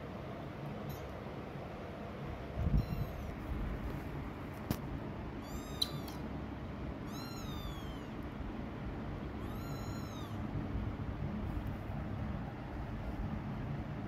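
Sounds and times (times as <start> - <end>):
kitten meowing: 2.7 - 3.4, 5.4 - 6.2, 7.0 - 8.2, 9.4 - 10.4.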